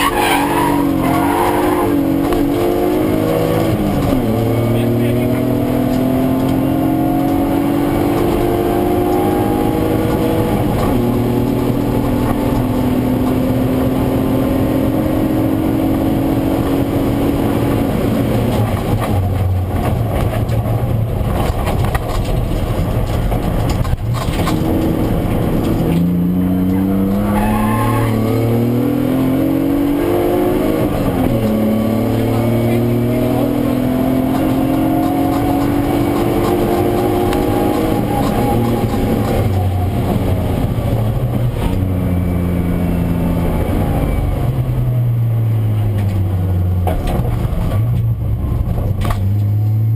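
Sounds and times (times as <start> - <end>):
car engine accelerating: 0.0 - 49.9
tyre and road noise: 0.0 - 49.9.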